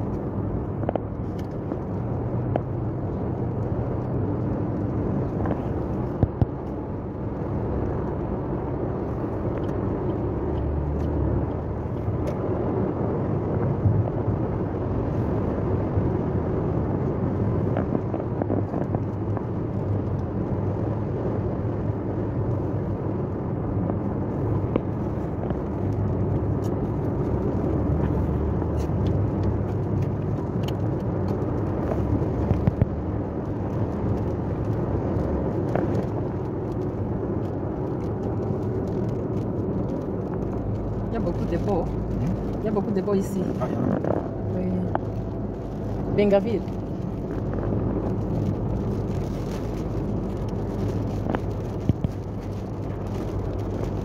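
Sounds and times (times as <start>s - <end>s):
car road noise from inside: 0.0s - 54.0s.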